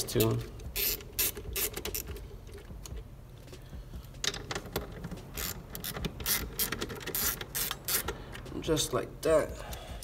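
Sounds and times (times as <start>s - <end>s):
wrench clicking on battery nuts: 0.2s - 2.2s, 5.4s - 8.4s.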